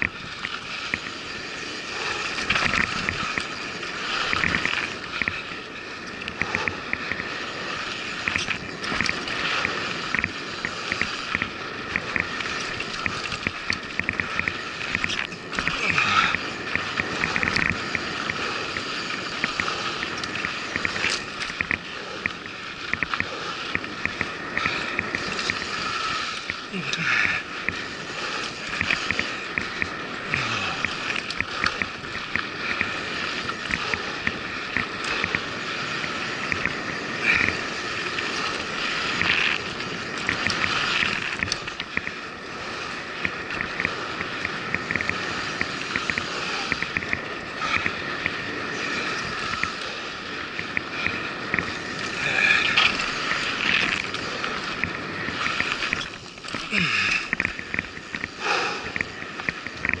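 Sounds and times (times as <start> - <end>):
bicycle tyres on dirt and leaves: 0.0 - 60.0
bike jolts: 0.0 - 60.0
bike ticking and rattling: 0.0 - 60.0.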